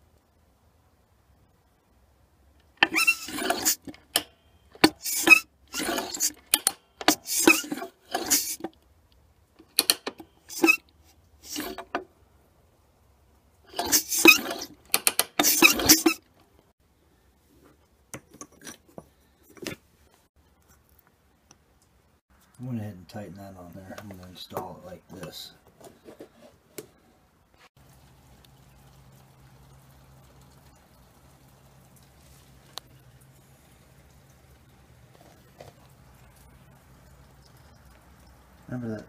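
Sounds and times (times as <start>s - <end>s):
metal scraping and clacking: 2.8s - 8.7s, 11.4s - 12.0s, 13.7s - 16.2s.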